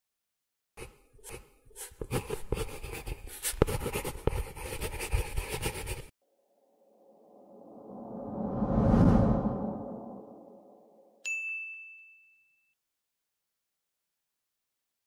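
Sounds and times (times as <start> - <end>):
pen scratching on paper: 0.8 - 6.2.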